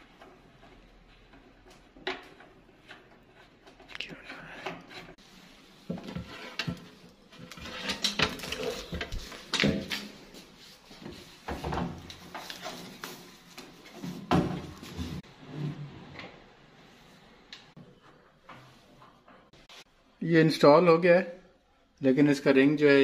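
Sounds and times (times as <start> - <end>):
metal casing scraping and knocking: 5.9 - 10.2.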